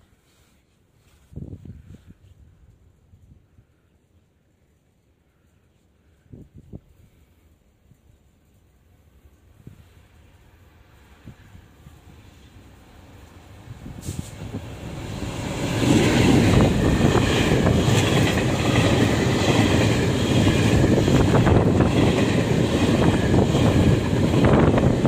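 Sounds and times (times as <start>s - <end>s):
train wheels rumbling on rail: 9.2s - 25.0s.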